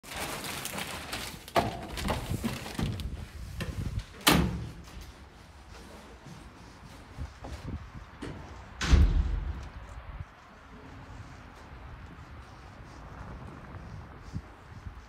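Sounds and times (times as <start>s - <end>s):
doors thudding shut: 8.2s - 9.6s.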